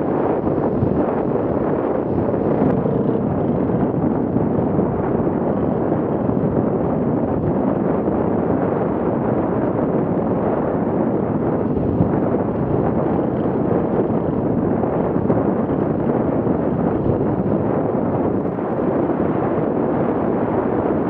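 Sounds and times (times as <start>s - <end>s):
wind rush on microphone: 0.0s - 21.0s
motorcycle engine: 0.2s - 6.3s
rattle over rocky track: 0.5s - 7.2s.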